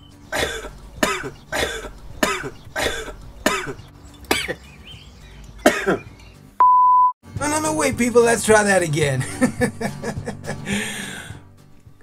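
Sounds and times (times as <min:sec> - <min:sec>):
man coughing hard: 0:00.3 - 0:04.6, 0:05.6 - 0:06.1.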